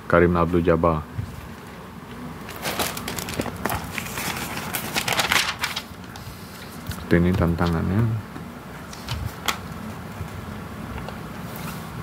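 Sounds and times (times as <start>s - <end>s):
magazine page turning: 2.5s - 7.0s.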